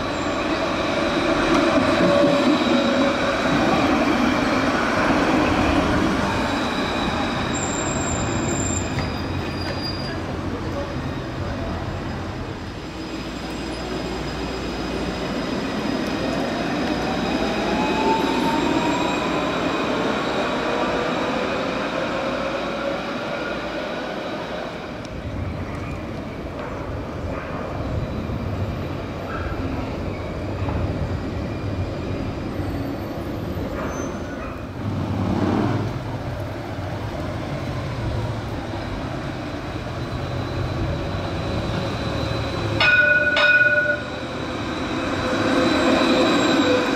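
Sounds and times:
tram rolling noise: 0.0 - 46.9
high wheel squeal: 5.3 - 11.8, 12.6 - 21.5, 27.9 - 34.6, 38.7 - 46.9
tram motors whining: 27.8 - 46.9.

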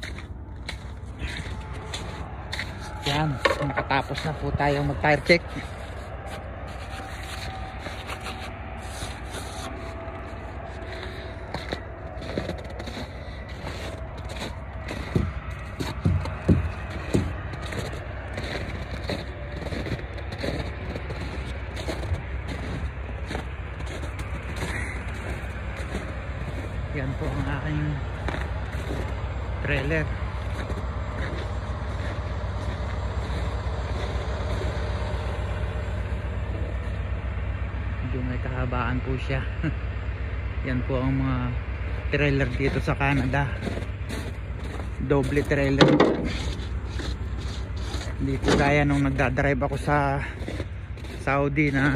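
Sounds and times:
footsteps crunching on icy pavement: 0.0 - 51.9
low engine rumble: 0.0 - 51.9
thumps and scrapes: 45.8 - 48.7.

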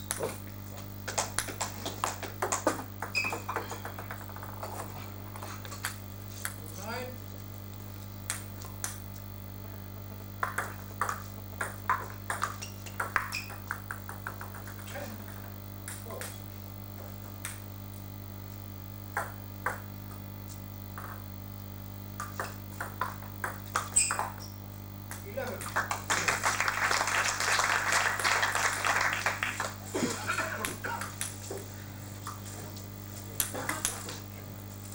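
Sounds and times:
ball bouncing to rest: 10.4 - 16.4, 22.2 - 24.5.

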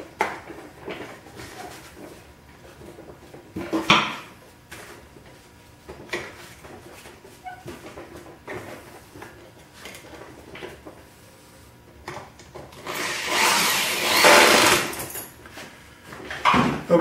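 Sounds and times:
cordless drill driving screw: 12.8 - 15.0.

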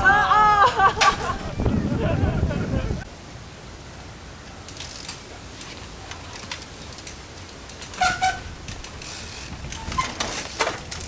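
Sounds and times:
bicycle over pebble paving: 4.3 - 11.0
short loud squeaks: 7.9 - 8.5, 9.2 - 10.5.

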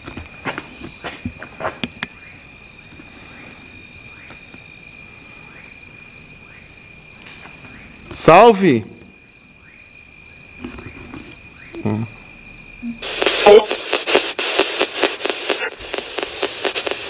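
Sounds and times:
faint high whine: 10.6 - 17.0
radio static with clicks: 12.8 - 17.0.

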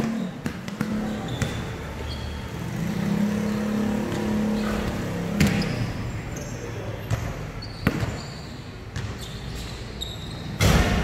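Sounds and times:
basketball bouncing on concrete: 0.0 - 1.8, 5.4 - 5.7, 7.0 - 8.2
vehicle engine humming: 0.0 - 7.6.

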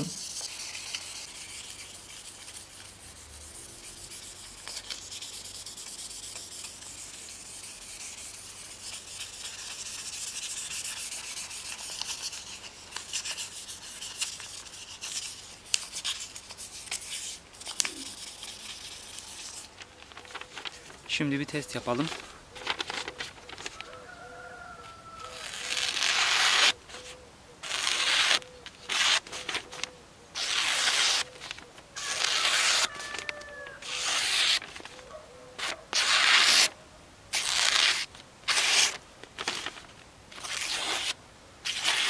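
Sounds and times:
sandpaper rubbing on wood: 0.0 - 19.7, 25.4 - 26.8, 27.6 - 29.2, 30.4 - 31.3, 32.0 - 32.9, 33.8 - 34.6, 35.6 - 36.7, 37.4 - 39.0, 41.7 - 42.0.

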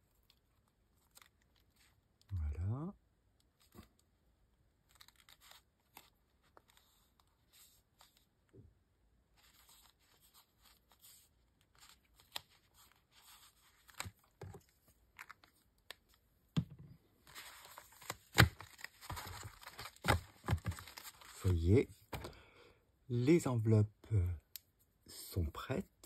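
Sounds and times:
paper rustling and sliding: 17.2 - 22.3.

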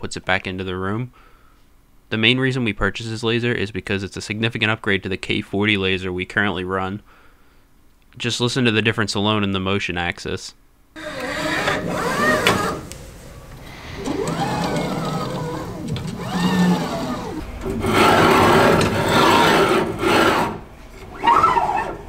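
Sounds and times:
mechanical whir of gantry on rails: 11.0 - 22.0.

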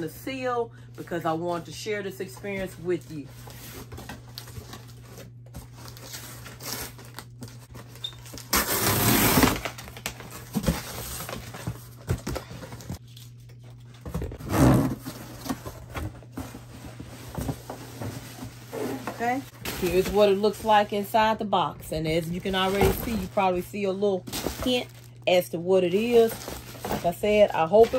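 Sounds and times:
cardboard tearing: 3.6 - 12.0, 14.3 - 16.0
packing tape peeling: 5.9 - 10.4.

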